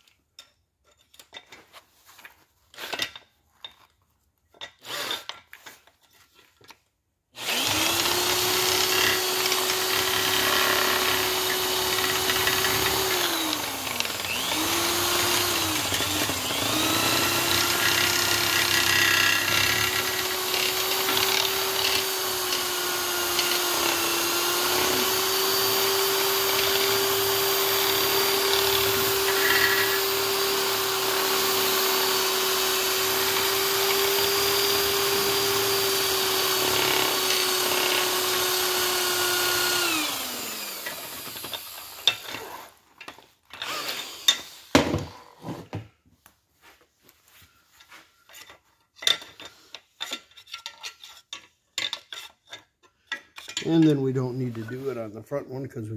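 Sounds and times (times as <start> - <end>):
electric drill grinding whine: 7.4 - 42.8, 43.5 - 45.4
tool knocks and clatter: 43.0 - 45.9.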